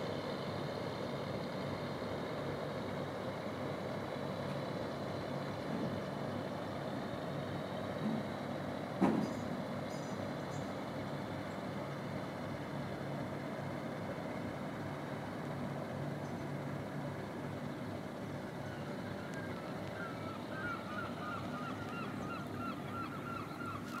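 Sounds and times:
boat diesel engine droning: 0.0s - 24.0s
bird calling repeated notes: 18.6s - 24.0s.

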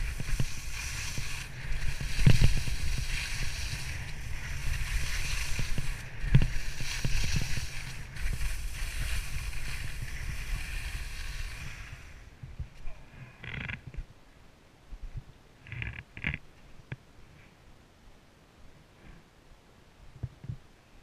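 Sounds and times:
snow hissing under skis: 0.0s - 12.3s
wind rumble on microphone: 0.0s - 14.1s.

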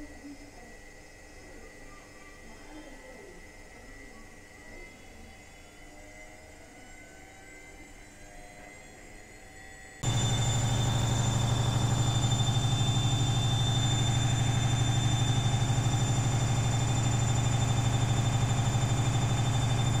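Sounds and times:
washing machine spinning: 10.0s - 20.0s.

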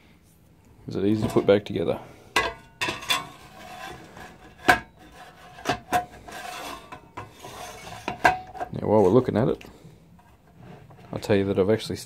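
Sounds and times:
metal cover scraping: 1.1s - 9.5s, 10.2s - 11.4s.

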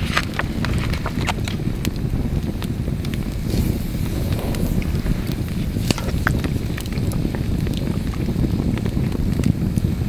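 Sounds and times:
campfire rumble: 0.0s - 10.0s
fire crackles and pops: 0.0s - 10.0s.

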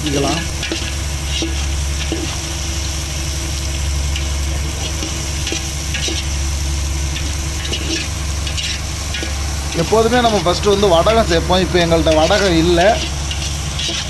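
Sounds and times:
low hum: 0.0s - 14.0s
vegetables sizzling in oil: 0.0s - 14.0s
ladle scraping steel pot: 0.4s - 2.8s, 3.6s - 10.4s, 12.0s - 14.0s.

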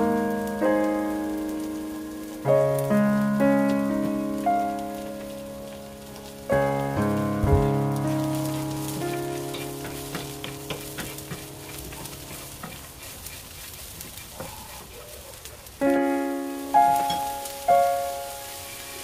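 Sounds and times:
piano music: 0.0s - 13.6s, 15.6s - 19.0s
light frying sizzle: 0.0s - 19.0s
wooden spatula scraping a pan: 8.1s - 15.4s.

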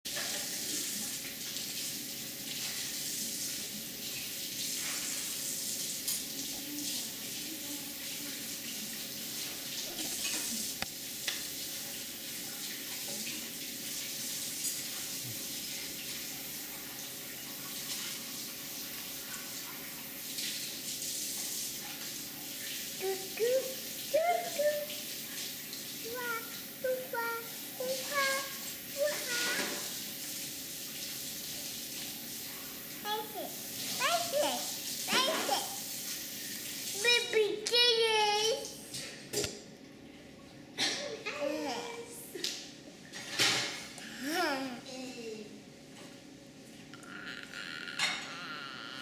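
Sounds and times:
running water hissing: 0.1s - 38.9s.

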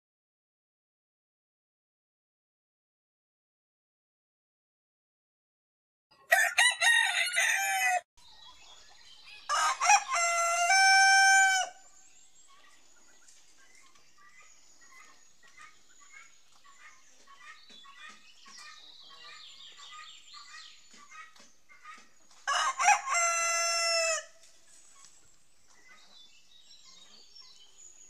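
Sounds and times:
hens clucking and cheeping: 6.1s - 28.0s
rooster crowing: 6.2s - 8.1s, 9.5s - 11.8s, 22.5s - 24.4s.

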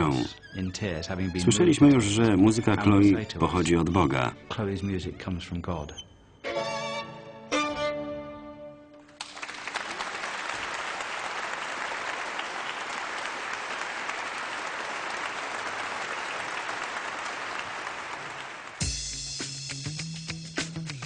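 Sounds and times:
audience applauding: 9.1s - 18.8s.

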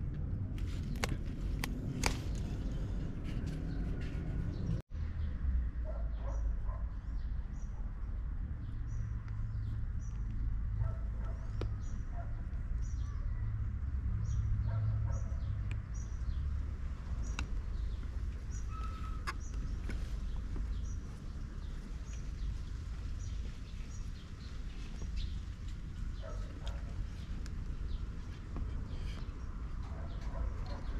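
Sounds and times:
small bird chirping: 17.1s - 28.4s.

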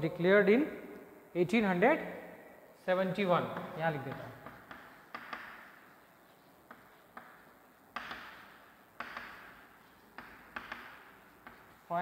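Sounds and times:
chalk tapping on blackboard: 3.6s - 11.9s.

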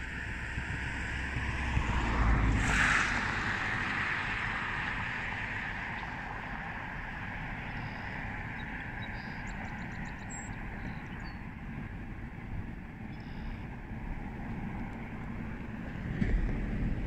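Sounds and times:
low fluctuating rumble: 0.0s - 17.0s
steady rushing noise: 0.0s - 17.0s
faint bird chirps: 7.6s - 11.4s, 13.1s - 13.7s.

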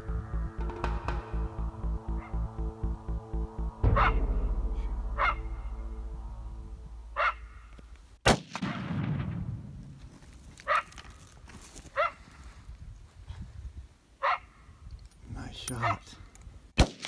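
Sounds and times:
background music: 0.0s - 7.7s
coyote barks: 3.8s - 4.2s, 5.2s - 5.5s, 7.1s - 7.7s, 10.6s - 11.0s, 11.9s - 12.2s, 14.2s - 14.6s, 15.7s - 16.1s
echoing rifle shot: 8.2s - 9.8s, 16.8s - 17.0s.

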